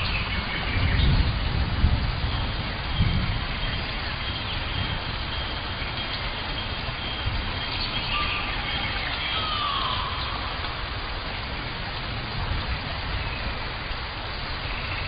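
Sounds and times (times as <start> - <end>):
steady hiss: 0.0 - 15.0
birds whistling: 3.0 - 10.9.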